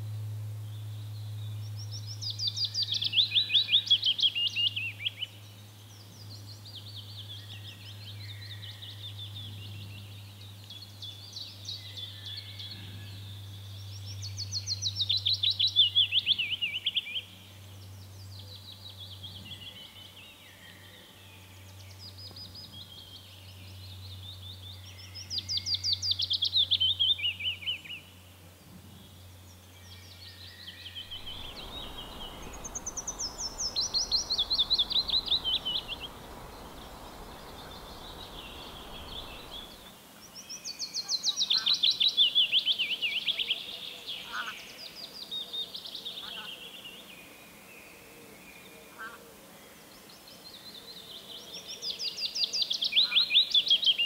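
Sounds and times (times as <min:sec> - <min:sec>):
willow warbler singing: 0:00.0 - 0:20.9, 0:29.1 - 0:47.1.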